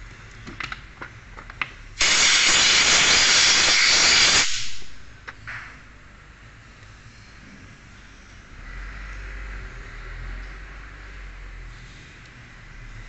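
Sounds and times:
compressed air blow gun hiss: 2.0s - 5.0s.

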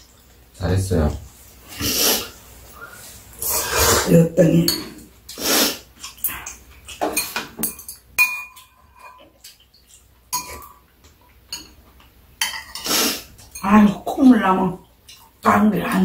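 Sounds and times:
slurping noodles: 1.7s - 2.4s, 3.4s - 4.1s, 5.3s - 5.9s, 12.8s - 13.3s
utensils clinking on ceramic bowls: 6.0s - 10.7s, 11.5s - 11.8s, 12.4s - 14.0s.

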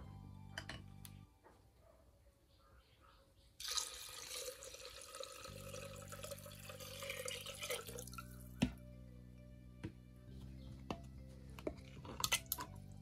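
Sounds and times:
liquid pouring and splashing: 3.6s - 8.3s.

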